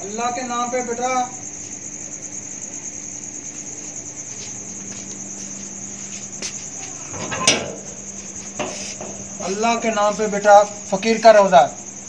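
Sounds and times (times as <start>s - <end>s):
crickets chirping: 0.0s - 12.0s
metal bolt scraping on door: 6.9s - 9.5s.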